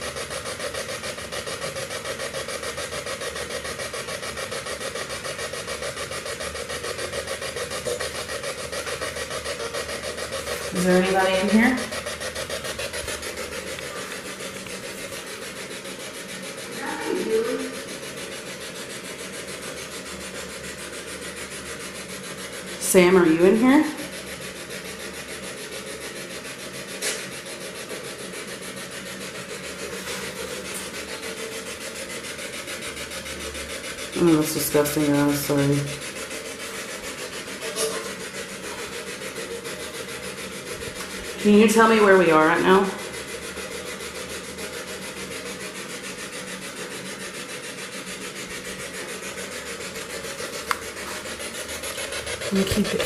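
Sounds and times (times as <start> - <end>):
pulsing radio static: 7.5 - 12.2, 16.6 - 17.9, 52.4 - 53.0.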